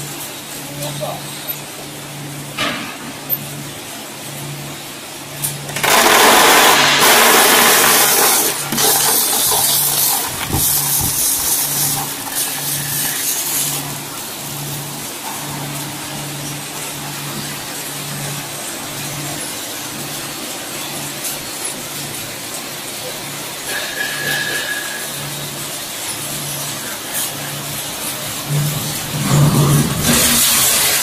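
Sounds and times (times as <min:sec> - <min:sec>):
machinery pulsing hum: 0:25.1 - 0:31.0
loud rushing noise: 0:28.2 - 0:31.0.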